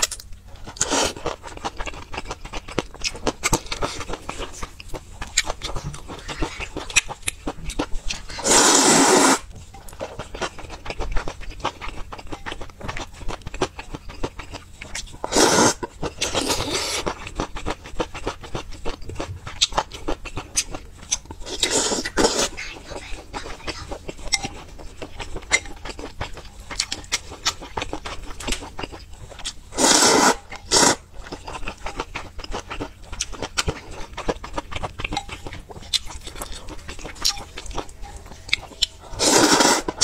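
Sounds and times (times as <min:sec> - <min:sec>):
loud noodle slurping: 0:08.4 - 0:09.5, 0:15.2 - 0:17.1, 0:29.7 - 0:31.0, 0:39.1 - 0:40.0
chewing and wet mouth clicks: 0:31.2 - 0:39.0.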